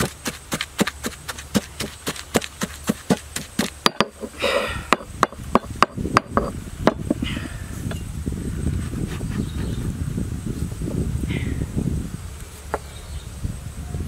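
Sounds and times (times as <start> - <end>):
stone pestle pounding in mortar: 0.0 - 4.3.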